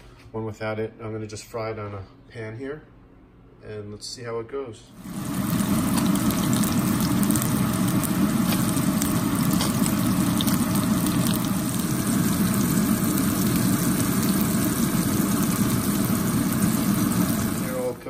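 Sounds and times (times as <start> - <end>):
steady low hum: 2.0 - 18.0
fish sizzling in oil: 5.0 - 18.0.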